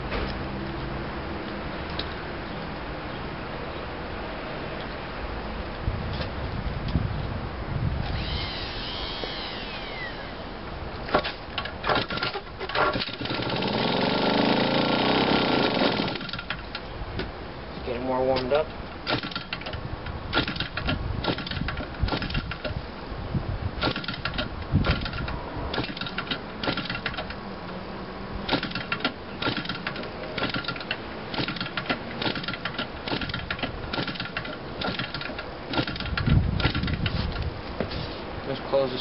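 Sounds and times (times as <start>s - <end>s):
model engine clicking over: 11.2s - 14.0s, 23.8s - 27.4s, 28.5s - 37.1s.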